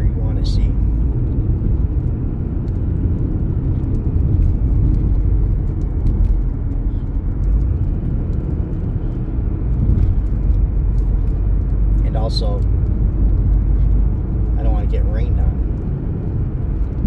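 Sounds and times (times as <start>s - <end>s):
car road and engine rumble: 0.0s - 17.0s.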